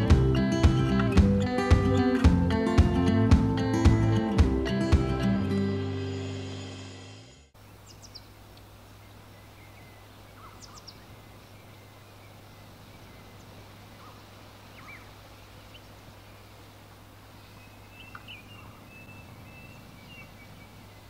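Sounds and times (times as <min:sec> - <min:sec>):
background music: 0:00.0 - 0:07.5
bird chirps: 0:07.6 - 0:16.6, 0:17.4 - 0:21.0.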